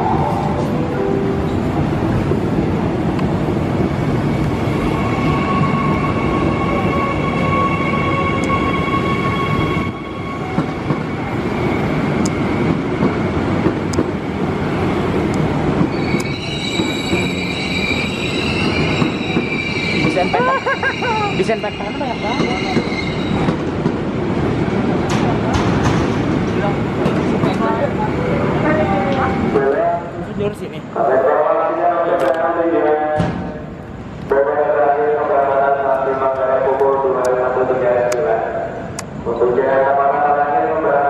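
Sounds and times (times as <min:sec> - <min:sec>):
train wheels rumbling on rails: 0:01.4 - 0:29.7
metallic wheel squealing: 0:15.9 - 0:23.5.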